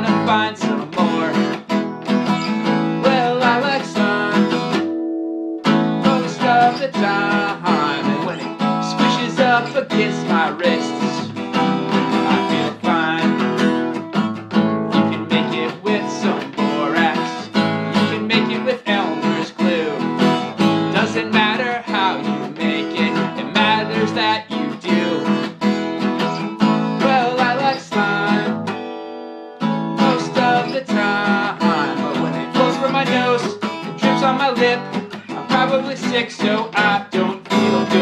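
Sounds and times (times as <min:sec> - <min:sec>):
acoustic guitar strumming: 0:00.0 - 0:38.0
wavering lead melody: 0:04.8 - 0:06.1.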